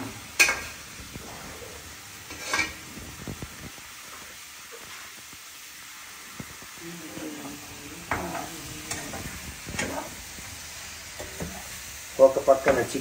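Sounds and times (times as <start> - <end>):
food sizzling in oil: 0.0 - 13.0
utensil scraping a pan: 2.3 - 2.9.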